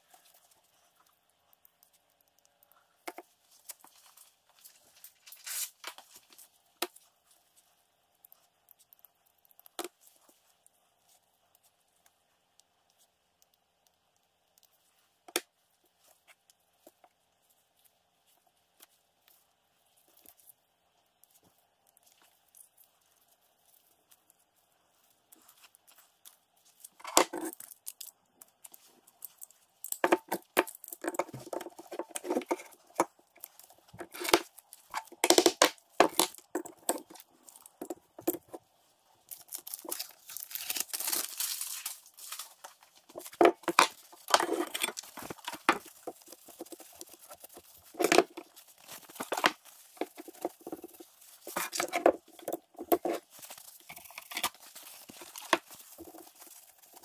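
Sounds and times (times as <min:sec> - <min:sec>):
rustling and wiping: 0:37.0 - 0:57.0.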